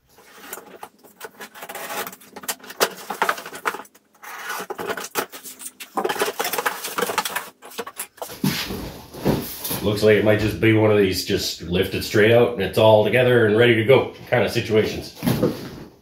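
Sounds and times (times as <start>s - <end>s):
cardboard crackling and rustling: 0.0s - 10.0s
packing tape peeling: 1.2s - 3.3s.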